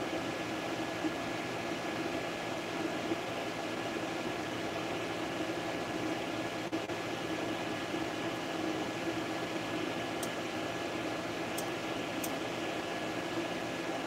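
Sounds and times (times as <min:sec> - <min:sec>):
cooling fans whirring: 0:00.0 - 0:14.0
motors humming: 0:00.0 - 0:14.0
faint high ticks: 0:11.6 - 0:12.4.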